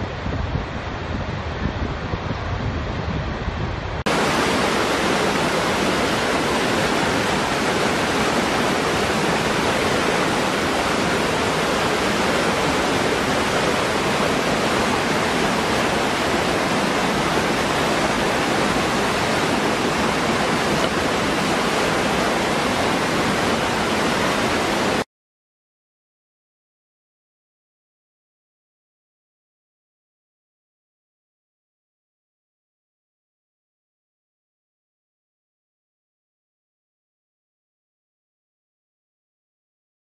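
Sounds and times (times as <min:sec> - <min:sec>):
waterfall rushing: 0:04.0 - 0:25.0.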